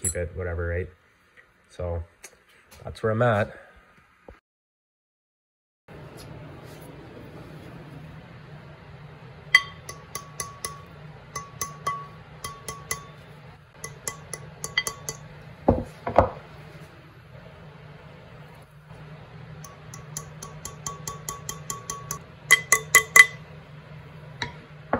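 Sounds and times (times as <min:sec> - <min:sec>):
hammer tapping on steel shaft: 0:09.5 - 0:15.4, 0:19.6 - 0:23.4.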